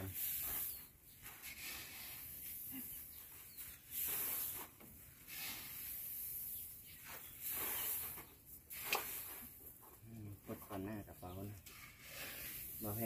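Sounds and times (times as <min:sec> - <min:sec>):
rice grain pouring into sack: 0:03.9 - 0:06.6.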